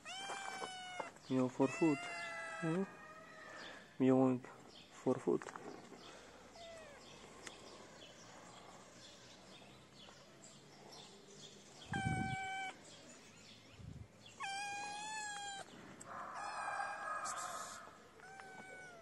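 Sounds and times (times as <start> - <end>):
kitten meowing: 0.0 - 3.2, 11.9 - 12.8, 14.4 - 15.7, 17.5 - 19.0.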